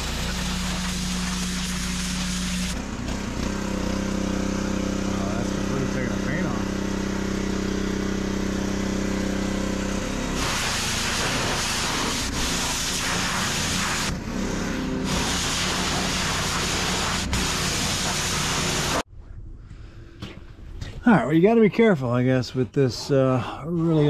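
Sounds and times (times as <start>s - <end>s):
water spray hissing on plastic: 0.0s - 2.8s, 10.4s - 19.0s
pressure washer engine running: 0.0s - 19.1s.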